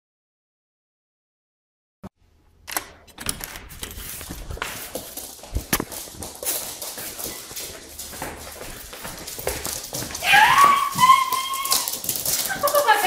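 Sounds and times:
dog claws clattering on floor: 3.2 - 13.0.

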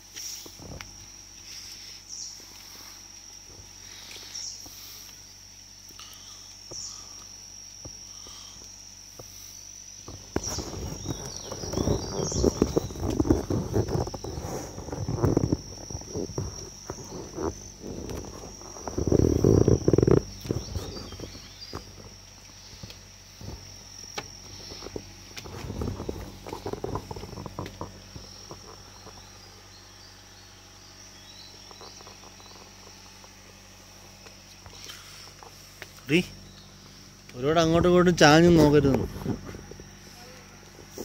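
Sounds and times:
insects droning: 0.0 - 41.0
low rumbles: 9.9 - 41.0
close knocks and rustles: 10.0 - 29.4.

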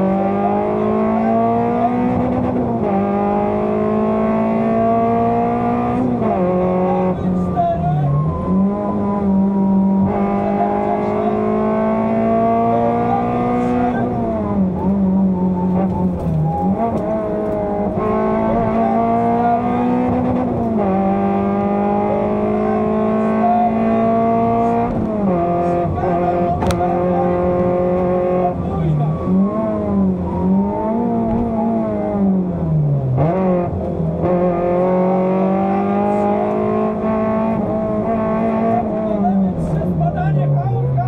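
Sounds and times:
rally car engine revving: 0.0 - 41.0.

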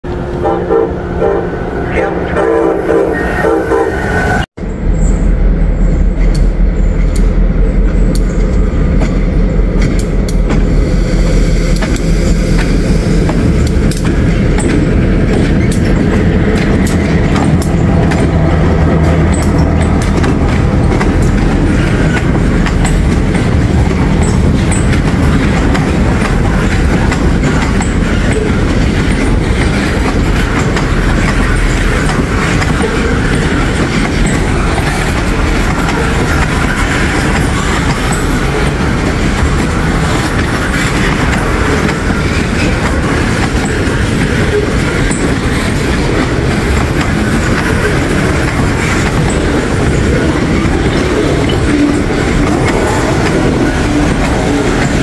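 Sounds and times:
diesel locomotive drone: 0.0 - 55.0
train wheels clattering over rails: 11.7 - 55.0.

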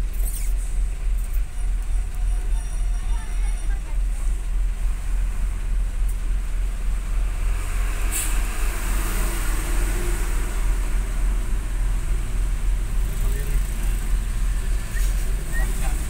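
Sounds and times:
road noise: 0.0 - 16.0
vehicle engine rumble: 0.0 - 16.0
short hiss: 8.1 - 8.5.

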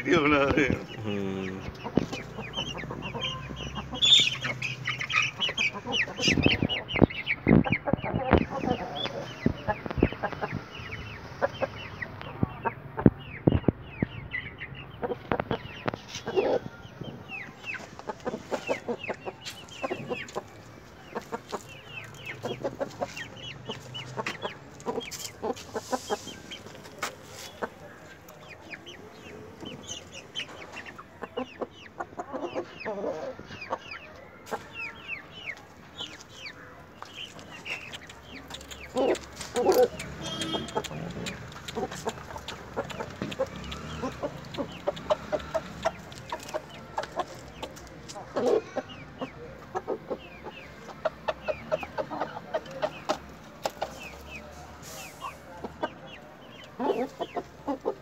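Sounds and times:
chickens clucking: 0.0 - 58.0
short sharp clicks: 37.9 - 46.0.

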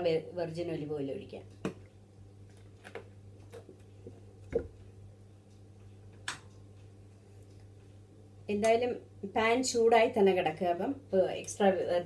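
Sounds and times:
plastic bottle clicks and knocks: 4.5 - 4.8.

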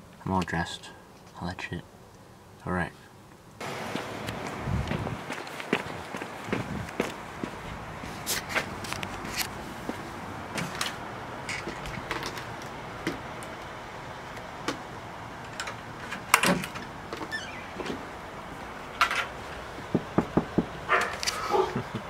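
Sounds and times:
footsteps with knocks and clicks: 3.8 - 13.6, 19.7 - 22.0.

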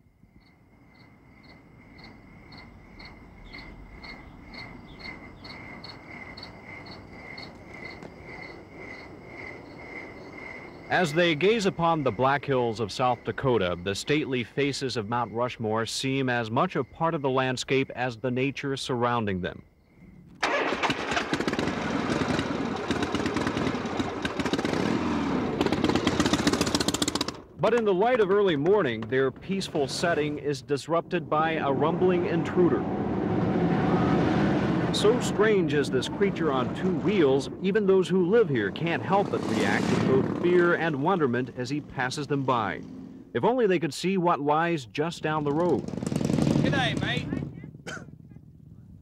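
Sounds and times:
crickets chirping: 0.0 - 27.0, 27.6 - 45.2
faint steady background noise: 0.0 - 49.0
motorcycle engine revving: 20.4 - 27.6, 31.5 - 43.4, 45.4 - 49.0.

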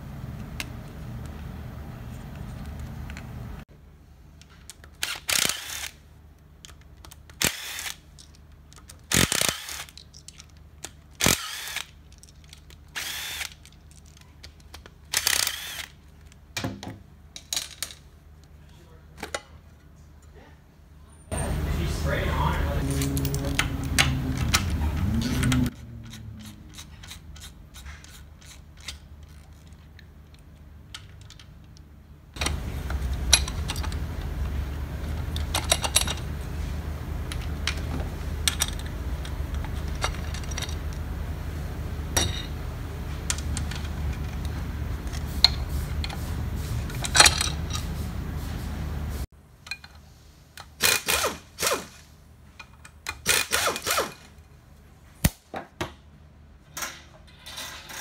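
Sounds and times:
steady low hum: 5.5 - 50.6
metal tools clinking and scraping: 21.2 - 29.9, 42.2 - 42.6, 45.1 - 48.0, 56.6 - 58.0.

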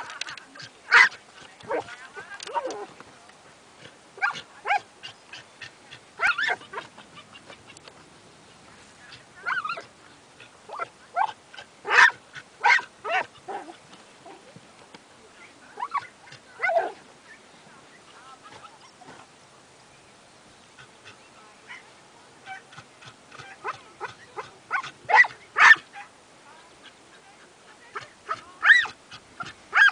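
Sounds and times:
dog yipping barking and whining: 0.9 - 1.8, 6.2 - 7.6, 11.9 - 13.6, 28.6 - 28.9.

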